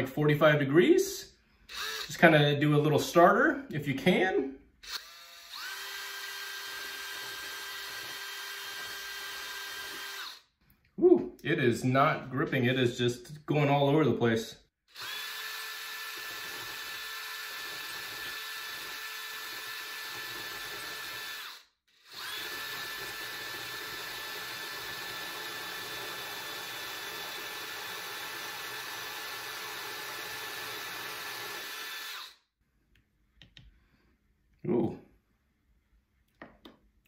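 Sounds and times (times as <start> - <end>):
cordless drill grinding rock: 1.7 - 2.3, 4.8 - 10.5, 14.9 - 32.4.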